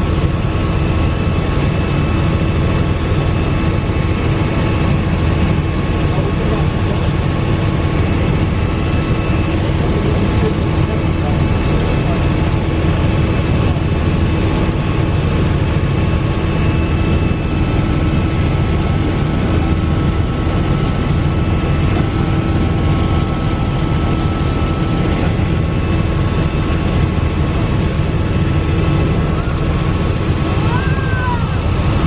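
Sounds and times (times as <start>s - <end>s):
helicopter engine and rotor rumble: 0.0s - 32.0s
thin steady whine: 0.0s - 32.0s.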